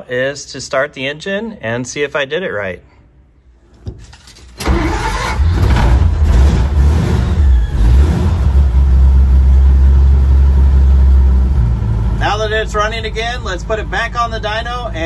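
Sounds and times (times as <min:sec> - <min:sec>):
engine starting and idling: 0:04.0 - 0:14.4.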